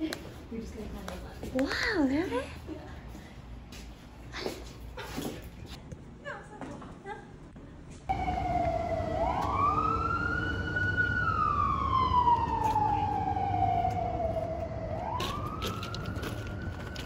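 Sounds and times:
emergency vehicle siren wailing: 8.1 - 17.0.

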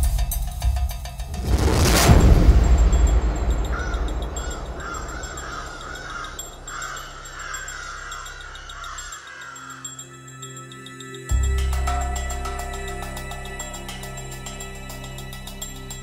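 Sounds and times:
music: 0.0 - 16.0
crow cawing: 3.7 - 10.1.

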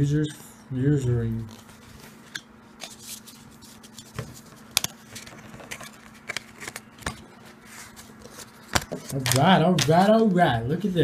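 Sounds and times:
faint steady hum: 0.0 - 11.0
trading cards clicking and rustling: 1.4 - 10.1.

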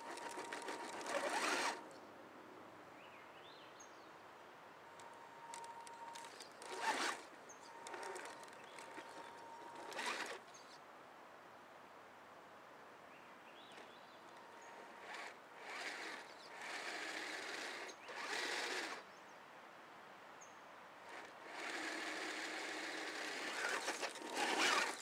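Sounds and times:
electric motor and gears whirring: 0.0 - 1.9, 5.0 - 10.5, 14.3 - 19.0, 21.0 - 25.0.

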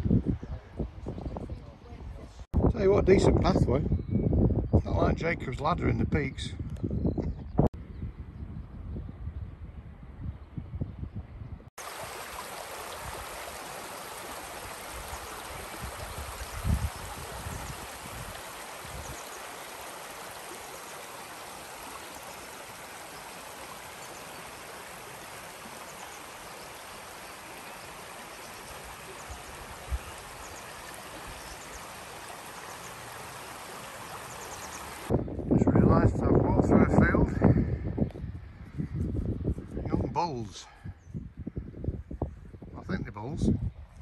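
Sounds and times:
stream rushing over rocks: 11.8 - 35.1.

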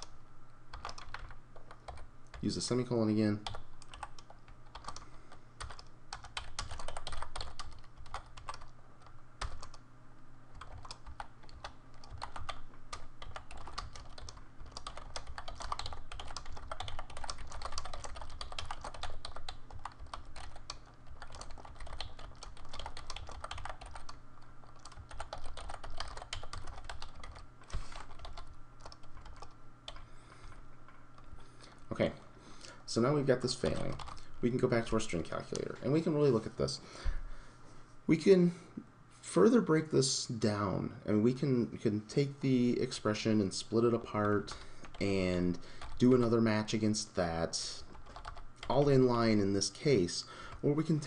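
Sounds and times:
faint low hum: 0.0 - 51.0
keyboard typing: 0.7 - 2.4, 3.4 - 9.8, 10.5 - 30.1, 45.8 - 46.1, 47.9 - 48.8.

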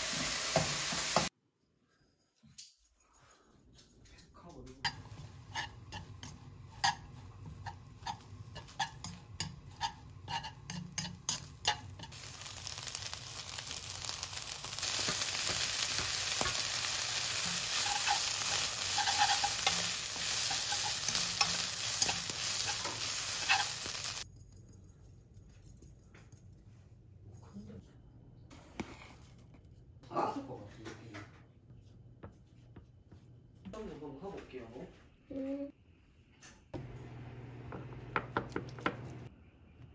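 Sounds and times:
frying sizzle: 0.0 - 1.3, 4.9 - 24.3
chopsticks scraping a wok: 4.9 - 24.2.

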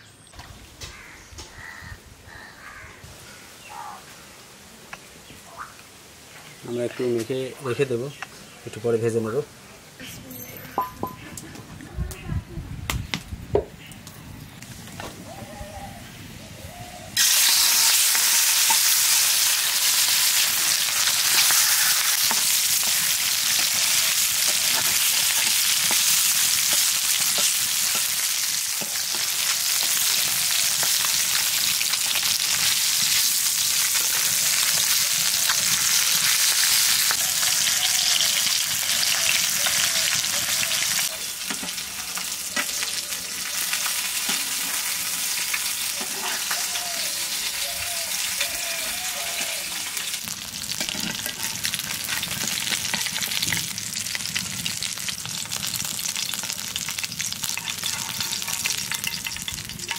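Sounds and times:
fish frying in hot oil: 17.2 - 59.9.

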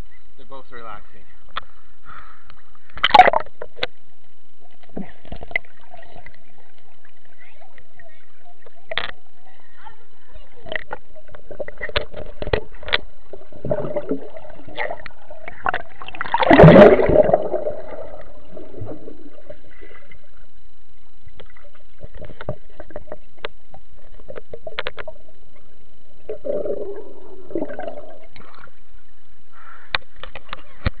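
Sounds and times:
water sloshing and gurgling: 2.2 - 31.0
loud splash: 16.1 - 19.0.

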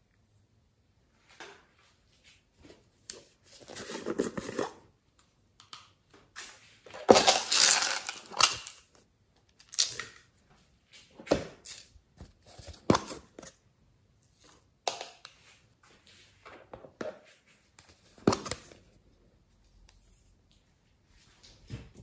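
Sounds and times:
plastic containers clicking and knocking: 6.9 - 8.8.

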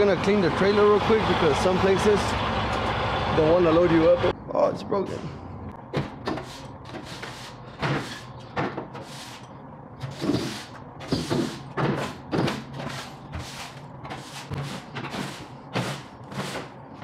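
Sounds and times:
broom sweeping floor: 6.3 - 8.2, 9.0 - 12.2, 12.8 - 16.7.

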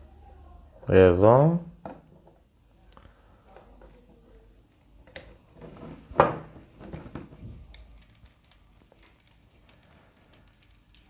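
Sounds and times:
plastic parts clicking and scraping: 6.7 - 11.0.

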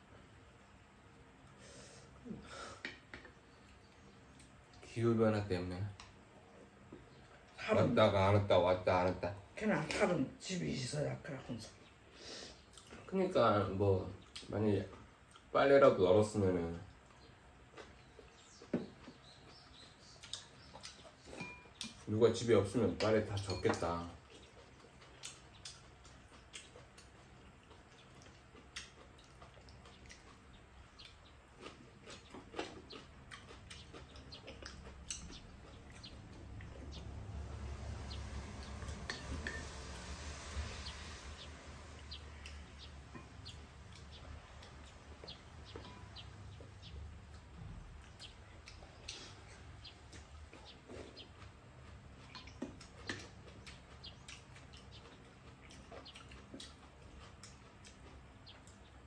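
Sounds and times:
faint room hum: 0.0 - 59.0
people chewing and slurping: 16.9 - 22.1, 22.9 - 58.9.

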